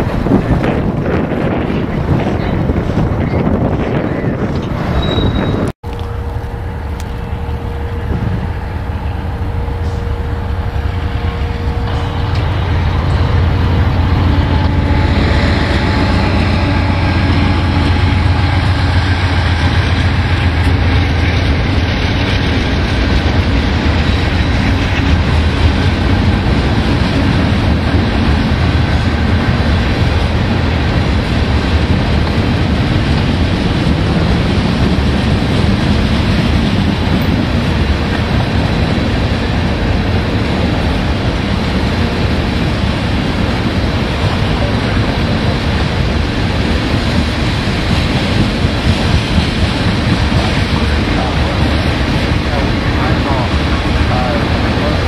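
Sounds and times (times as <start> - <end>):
diesel locomotive engine rumble: 0.0 - 55.0.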